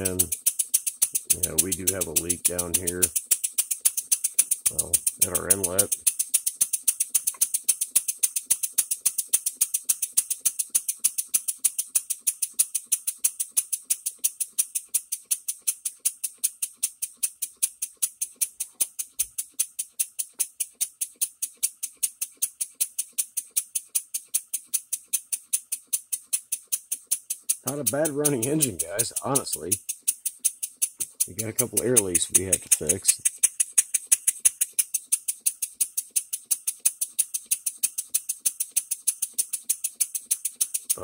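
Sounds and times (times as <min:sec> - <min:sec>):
model steam engine exhaust puffing: 0:00.0 - 0:41.0.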